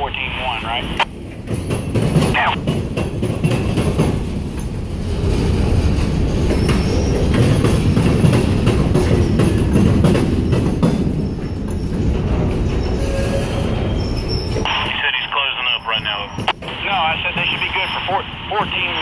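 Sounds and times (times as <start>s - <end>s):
train wheels rumbling on rail: 0.1s - 15.0s, 15.7s - 19.0s
faint high wheel squeals: 12.7s - 14.7s.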